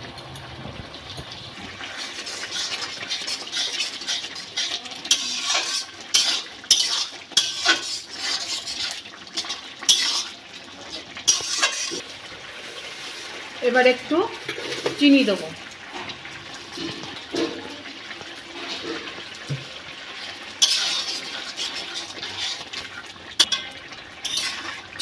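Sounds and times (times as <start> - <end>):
metal spatula scraping a pan: 1.9 - 12.1, 18.4 - 19.2, 20.2 - 25.0.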